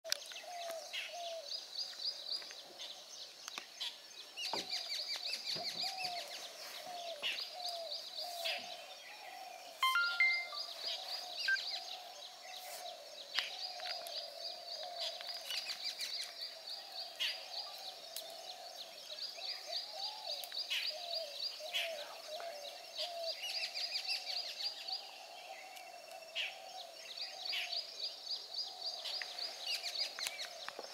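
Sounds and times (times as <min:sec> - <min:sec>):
high ticking bird trills: 0:09.8 - 0:10.8
wavering low bird call: 0:09.8 - 0:10.8.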